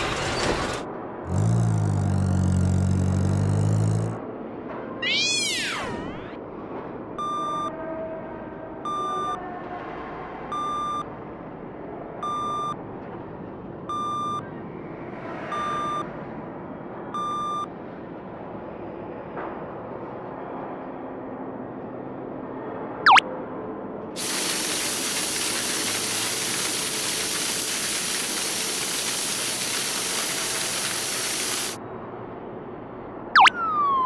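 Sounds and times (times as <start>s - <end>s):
short electronic beeps: 7.2s - 7.7s, 8.9s - 9.4s, 10.5s - 11.0s, 12.2s - 12.8s, 13.9s - 14.4s, 15.5s - 16.0s, 17.2s - 17.7s
swooping cartoon whistle: 33.4s - 34.0s.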